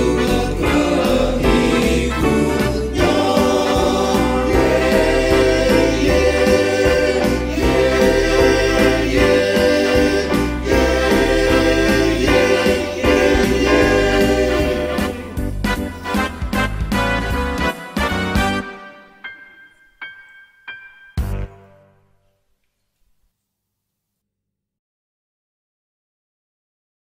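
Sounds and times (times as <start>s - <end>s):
men's choir singing a hymn: 0.0s - 15.6s.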